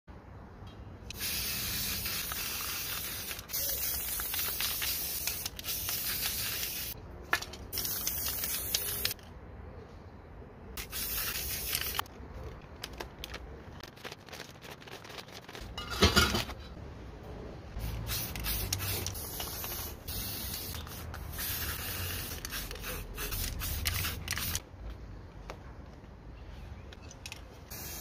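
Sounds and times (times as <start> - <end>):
spray-paint cans hissing: 1.1 - 7.0, 7.7 - 9.2, 10.8 - 12.1, 17.8 - 24.6, 27.7 - 28.0.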